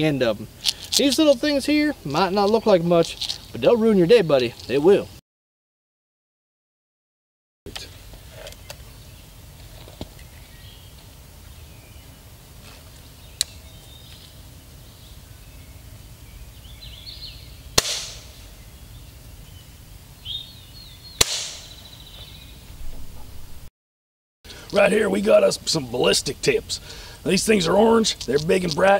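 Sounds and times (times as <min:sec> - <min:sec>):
air rifle shots: 0:17.8 - 0:18.5, 0:21.2 - 0:21.9.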